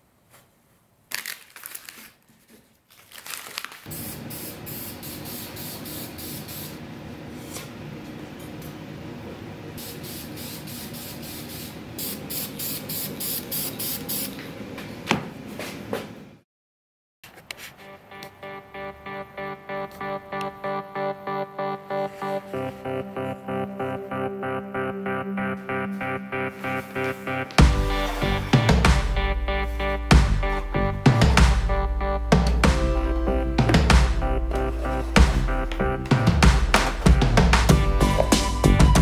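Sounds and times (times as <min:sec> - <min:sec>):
masking tape being peeled off: 0:01.1 - 0:03.9.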